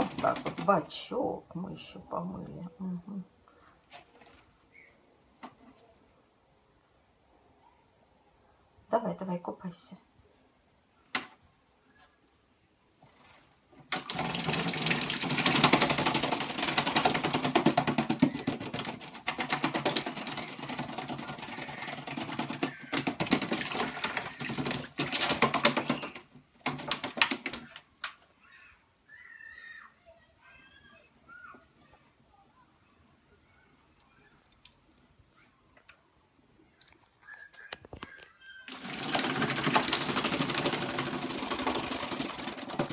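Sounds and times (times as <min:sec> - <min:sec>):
bird splashing in water bowl: 0:00.0 - 0:00.9, 0:13.8 - 0:27.8, 0:38.7 - 0:42.9
wings fluttering: 0:00.0 - 0:00.9, 0:13.0 - 0:27.9, 0:37.2 - 0:42.9.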